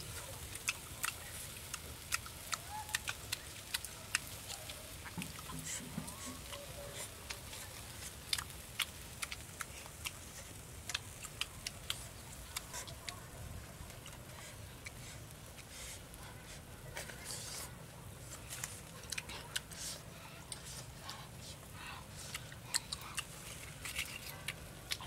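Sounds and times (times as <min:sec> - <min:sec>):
meat being chewed: 0:00.0 - 0:25.0.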